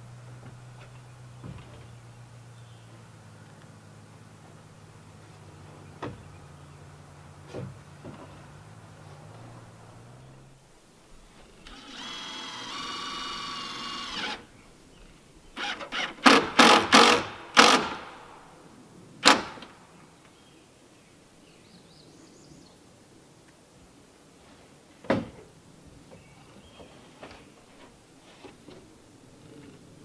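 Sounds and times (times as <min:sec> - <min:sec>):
cordless drill driving screw: 0:11.6 - 0:14.5, 0:15.6 - 0:18.2
short sharp bursts: 0:15.6 - 0:18.5.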